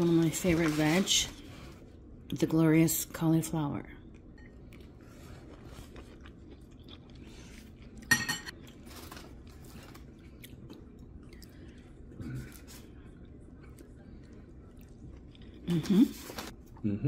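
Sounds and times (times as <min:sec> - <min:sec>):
food handling ticks and rustles: 0:00.0 - 0:01.8, 0:08.5 - 0:11.9
cutlery clinking on a plate: 0:08.1 - 0:08.5.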